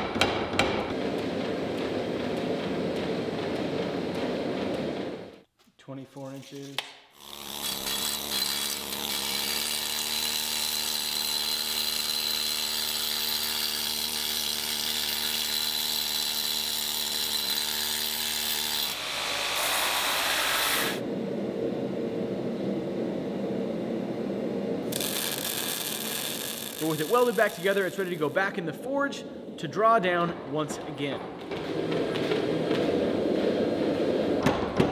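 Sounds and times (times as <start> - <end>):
noisy power tool: 7.2 - 21.1, 24.9 - 28.5
power tool motor whine: 24.9 - 28.2.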